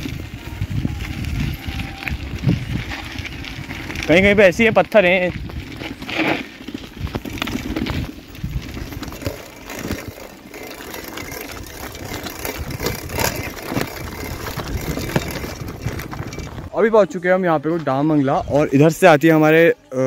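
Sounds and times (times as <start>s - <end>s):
bike rattling over bumps: 0.0s - 16.8s
bike tyres crunching on gravel: 0.0s - 16.8s.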